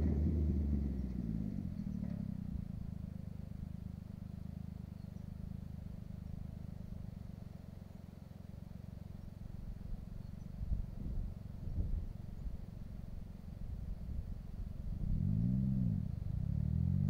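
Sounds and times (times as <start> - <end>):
distant buggy engine rumble: 0.0 - 17.0.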